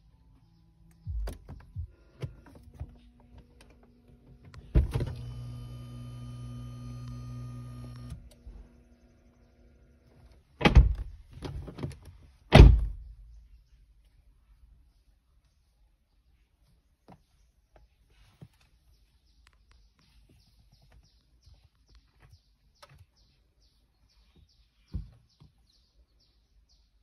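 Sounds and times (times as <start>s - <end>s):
power window motor whirring: 1.1s - 10.1s.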